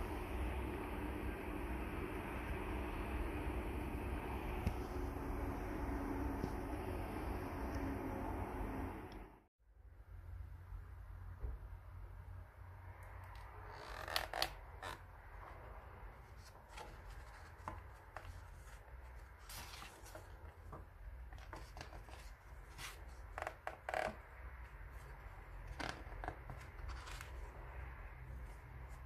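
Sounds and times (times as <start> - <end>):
book pages turning: 13.6 - 27.7.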